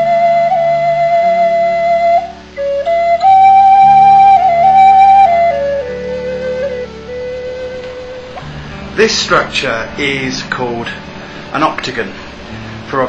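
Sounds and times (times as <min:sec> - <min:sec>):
wooden flute melody: 0:00.0 - 0:09.1
low steady drone notes: 0:00.0 - 0:13.0.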